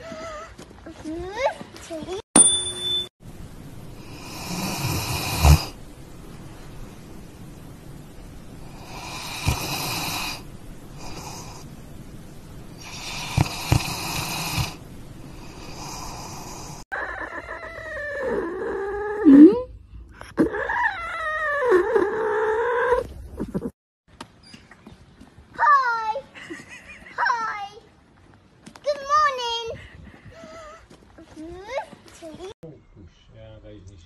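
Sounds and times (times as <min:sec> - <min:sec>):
dog snoring: 0:04.0 - 0:05.8, 0:08.7 - 0:10.4, 0:12.8 - 0:14.8, 0:15.4 - 0:16.8.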